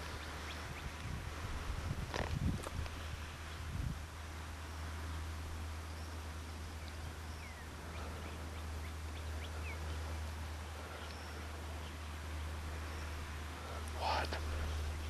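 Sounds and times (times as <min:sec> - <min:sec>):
steady low hum: 0:00.0 - 0:15.0
faint bird chirps: 0:05.0 - 0:15.0.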